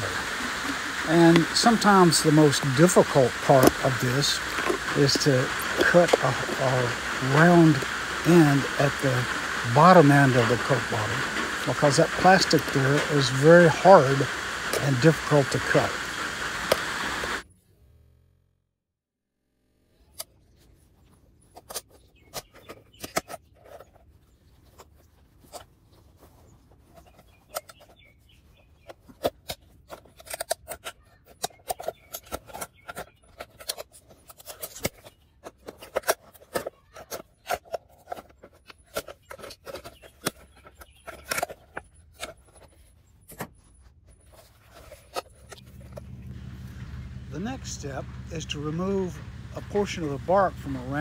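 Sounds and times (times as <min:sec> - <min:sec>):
shears snipping hard plastic: 0:01.1 - 0:15.8.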